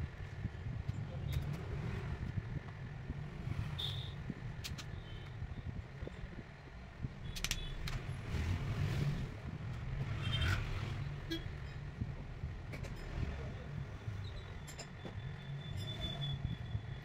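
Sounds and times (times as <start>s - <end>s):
steady low rumble: 0.0s - 15.6s
sharp plastic clicks: 4.6s - 5.0s, 7.2s - 8.1s.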